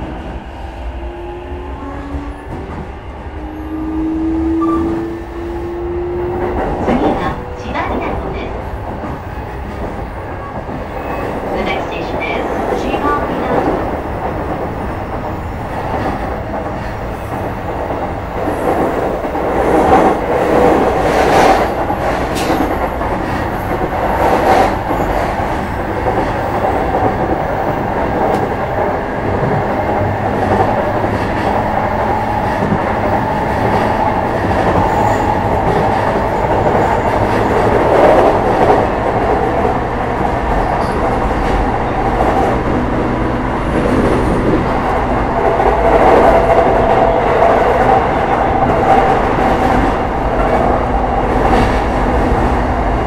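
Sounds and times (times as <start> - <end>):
train wheels rumbling on rails: 0.0 - 53.0
sharp clicks of train wheels: 13.6 - 42.8.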